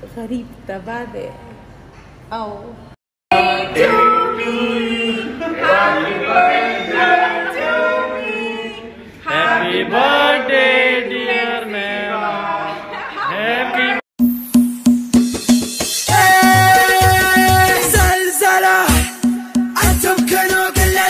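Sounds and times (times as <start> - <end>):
choir singing unaccompanied: 3.3 - 14.0.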